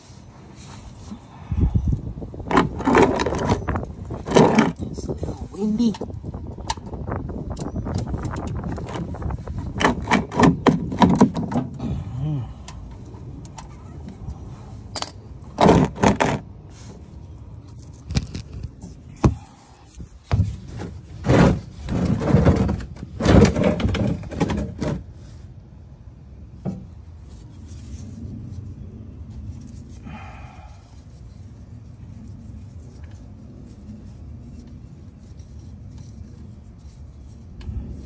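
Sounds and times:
loud rustling and scraping: 0.0s - 11.8s, 13.0s - 25.5s, 26.7s - 38.0s
plastic drain pan being moved: 2.5s - 4.8s, 20.4s - 25.0s
metal wrench clinking: 14.9s - 15.2s.

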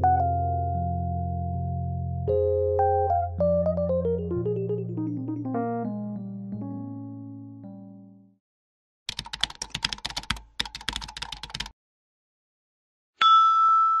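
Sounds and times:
piano music: 0.0s - 8.4s
keyboard typing clicks: 9.1s - 11.7s
bright chime: 13.2s - 14.0s.

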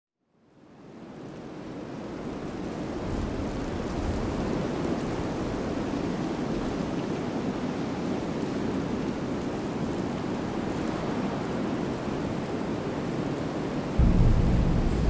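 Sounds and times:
low rushing noise: 14.0s - 15.0s.

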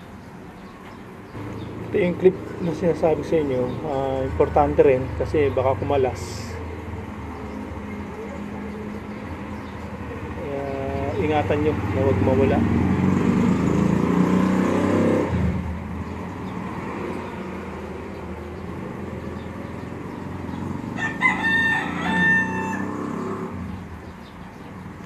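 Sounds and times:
rooster crowing: 20.9s - 23.2s.

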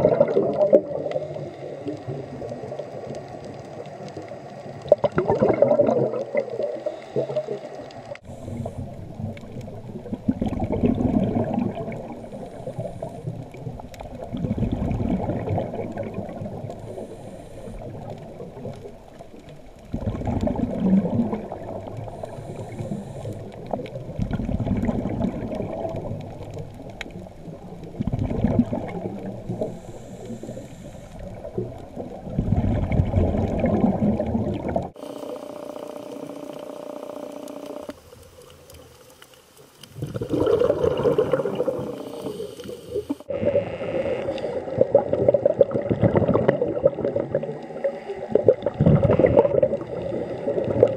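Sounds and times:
underwater regulator breathing: 6.7s - 9.1s, 12.1s - 13.5s, 16.7s - 18.2s, 22.0s - 23.8s, 29.5s - 31.5s, 40.4s - 45.0s.

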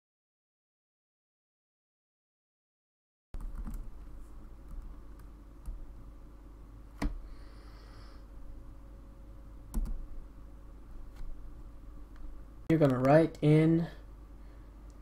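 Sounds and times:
low steady hum: 3.4s - 15.0s
keyboard keystrokes: 9.7s - 10.0s.

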